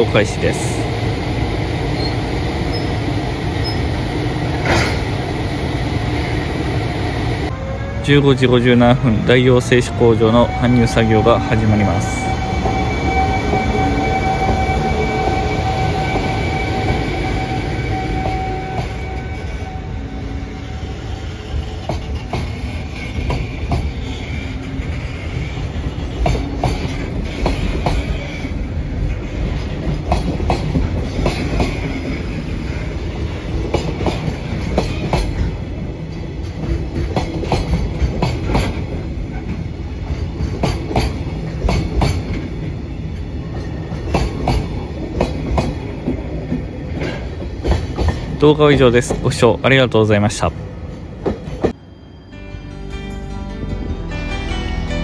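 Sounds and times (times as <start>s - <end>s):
electric locomotive whine: 0.0s - 48.4s, 50.3s - 55.0s.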